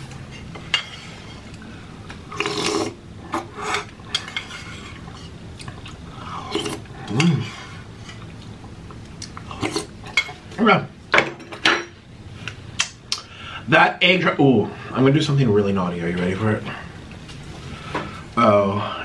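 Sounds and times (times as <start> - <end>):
person slurping soup: 2.3 - 5.2, 6.2 - 8.2, 9.4 - 10.0
person humming: 7.1 - 7.5.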